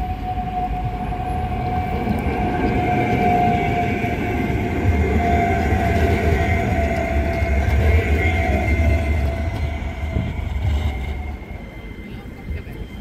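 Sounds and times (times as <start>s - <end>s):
thin steady whine: 0.0s - 13.0s
tram wheels rumbling on rail: 0.0s - 13.0s.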